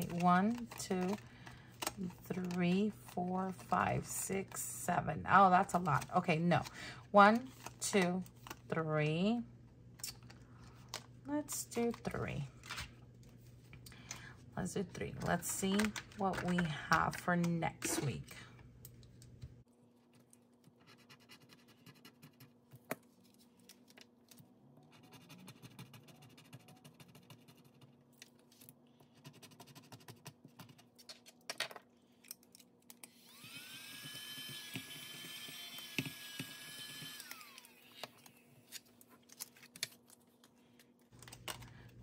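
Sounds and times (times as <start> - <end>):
small electric motor whirring: 33.0 - 38.4.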